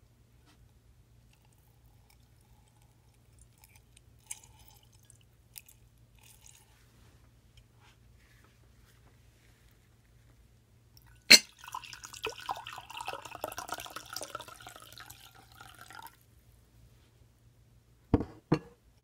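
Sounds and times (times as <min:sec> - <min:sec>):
pitcher clinking on mug: 0:11.3 - 0:12.8
water pouring into mug: 0:11.3 - 0:16.2
knocks: 0:18.2 - 0:18.8.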